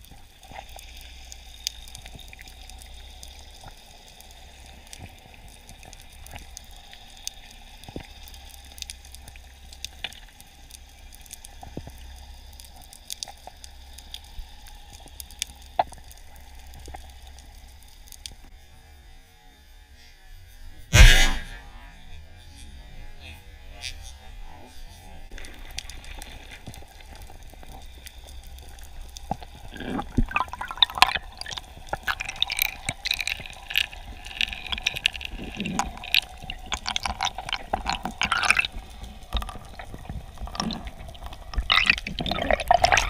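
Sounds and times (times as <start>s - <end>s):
speargun firing thump: 20.9s - 21.6s
underwater hiss: 20.9s - 21.8s.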